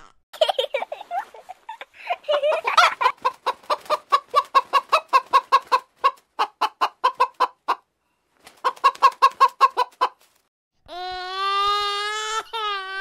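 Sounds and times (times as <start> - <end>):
hen clucking: 2.3 - 7.9, 8.6 - 10.2.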